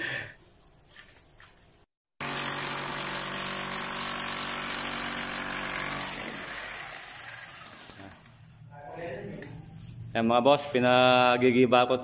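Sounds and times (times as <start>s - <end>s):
rotary hammer breaking wall: 2.2s - 8.4s.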